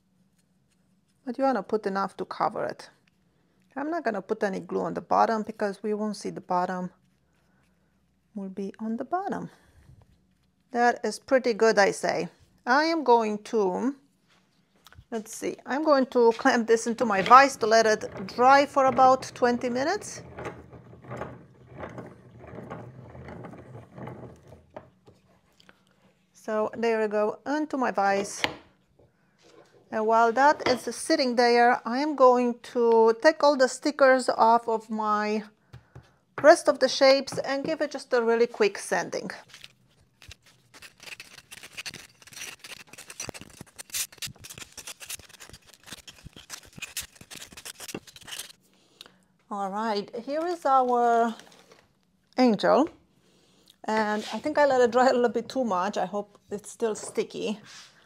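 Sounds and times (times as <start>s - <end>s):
bench vise screw scraping and rattling: 17.2s - 25.0s.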